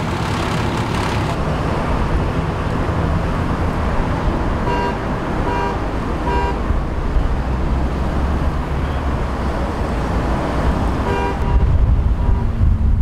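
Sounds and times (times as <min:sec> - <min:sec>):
road traffic rumble: 0:00.0 - 0:13.0
car horn toots: 0:04.6 - 0:06.7, 0:11.0 - 0:12.6.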